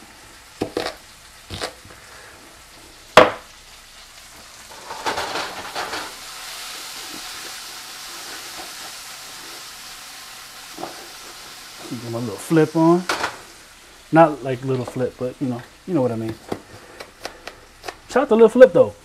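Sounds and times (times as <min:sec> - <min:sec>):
vegetables sizzling in frying pan: 0:00.0 - 0:19.0
peppers clattering in frying pan: 0:03.1 - 0:03.6, 0:04.7 - 0:07.5, 0:12.8 - 0:13.5.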